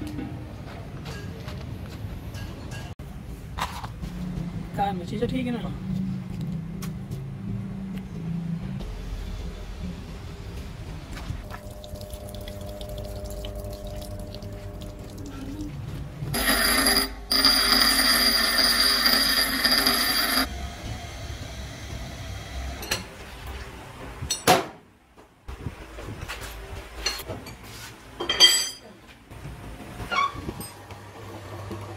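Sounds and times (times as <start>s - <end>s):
bench grinder grinding steel: 16.4s - 20.5s.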